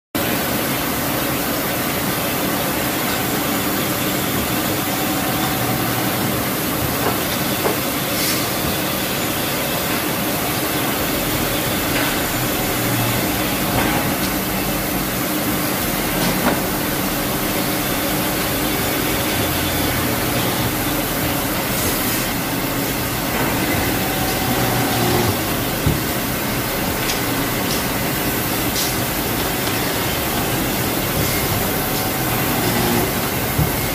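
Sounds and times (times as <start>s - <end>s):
drilling machine whirring: 4.2s - 7.5s, 16.0s - 33.9s.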